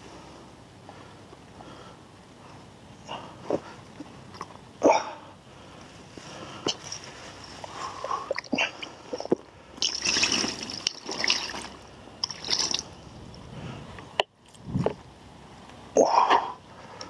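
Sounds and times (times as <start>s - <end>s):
water splashing from bucket: 9.8s - 12.9s.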